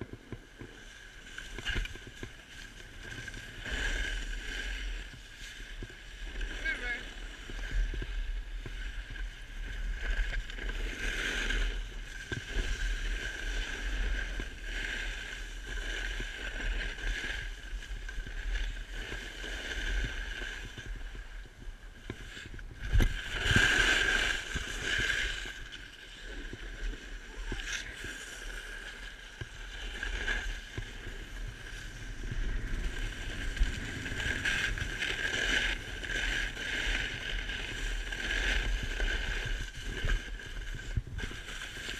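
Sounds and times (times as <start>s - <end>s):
snowboard scraping over snow: 0.0s - 41.9s.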